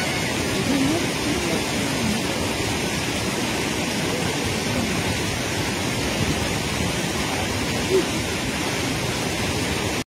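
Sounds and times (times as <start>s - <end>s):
river water rushing: 0.0s - 10.0s.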